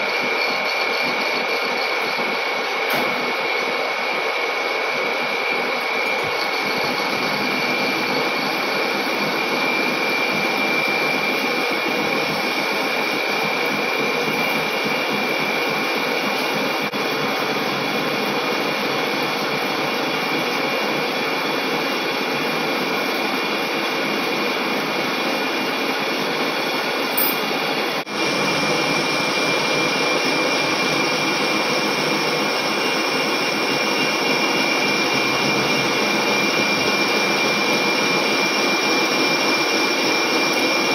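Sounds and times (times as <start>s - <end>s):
lathe cutting steel: 24.1s - 40.9s.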